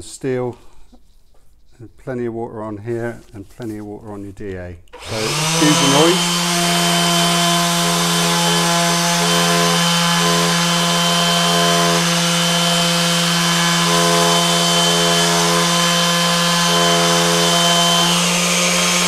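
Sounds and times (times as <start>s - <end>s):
orbital sander humming: 5.0s - 19.0s.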